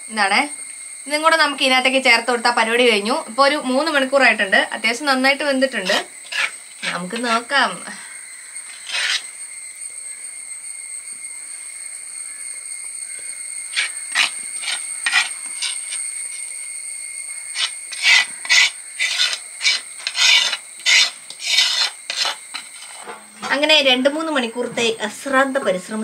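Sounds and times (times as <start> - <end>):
metal spoon scraping clay lid: 5.8 - 7.5, 8.7 - 9.3, 13.7 - 16.5, 17.5 - 23.2.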